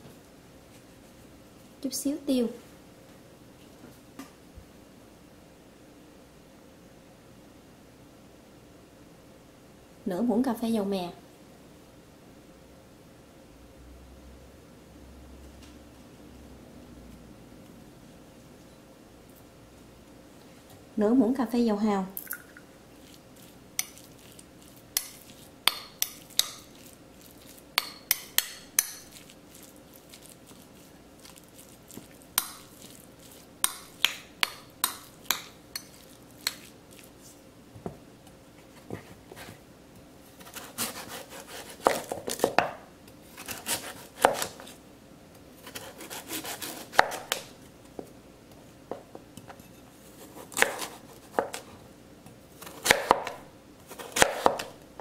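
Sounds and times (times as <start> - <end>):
spoon scraping ceramic bowl: 23.0 - 30.6, 31.2 - 37.4
knife chopping on plastic board: 40.4 - 42.8, 43.4 - 44.7, 45.7 - 47.5, 50.4 - 51.6, 52.6 - 54.7.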